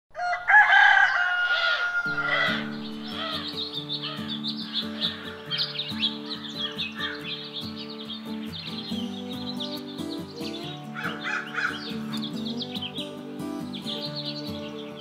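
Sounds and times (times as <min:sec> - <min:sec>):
rooster crowing: 0:00.1 - 0:03.5
birdsong chirping: 0:00.2 - 0:15.0
music with low chords: 0:02.1 - 0:15.0.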